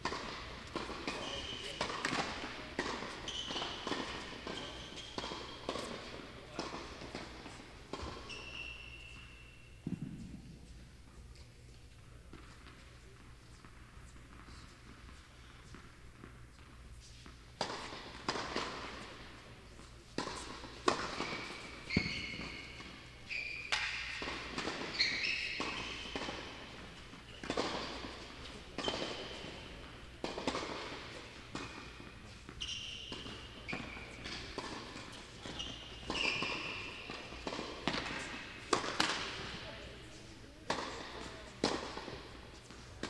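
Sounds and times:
tennis racket striking ball: 0:00.0 - 0:10.8, 0:17.0 - 0:22.9, 0:23.6 - 0:43.0
tennis ball bouncing: 0:00.0 - 0:11.4, 0:12.3 - 0:22.9, 0:23.6 - 0:43.0
shoes squeaking on court: 0:00.0 - 0:43.0.

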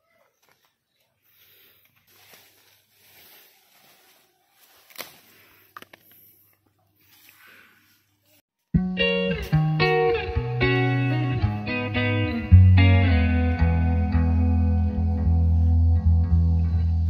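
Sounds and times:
leaves rustling: 0:00.3 - 0:08.4
stalk snapping: 0:04.6 - 0:06.3.

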